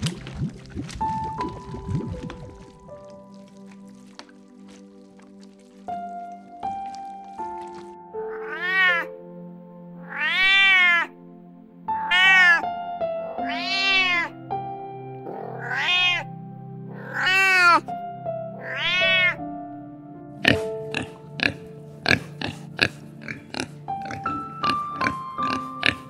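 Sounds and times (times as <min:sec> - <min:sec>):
cat meowing: 0:08.2 - 0:09.1, 0:10.0 - 0:11.2, 0:12.0 - 0:12.6, 0:13.4 - 0:14.4, 0:15.4 - 0:16.3, 0:16.9 - 0:17.9, 0:18.6 - 0:19.4.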